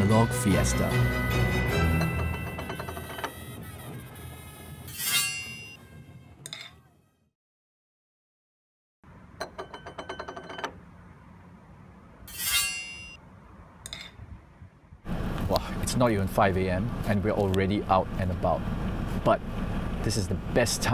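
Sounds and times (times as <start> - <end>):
chime-like notes: 0.0 - 3.3
title theme music: 0.0 - 4.1.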